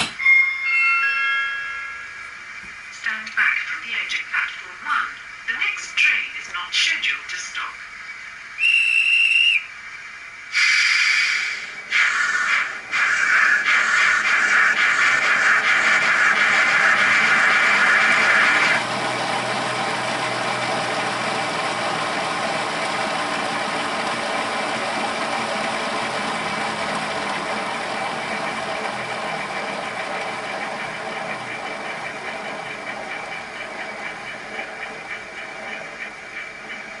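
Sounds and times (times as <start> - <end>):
soft steam locomotive beats: 0.0 - 37.0
hiss of steam from speaker: 10.5 - 18.8.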